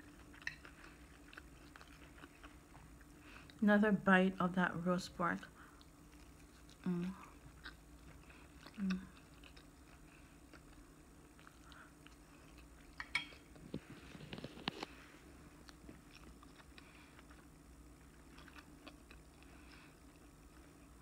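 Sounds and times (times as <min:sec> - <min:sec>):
closed-mouth chewing: 0:00.0 - 0:03.6, 0:05.5 - 0:21.0.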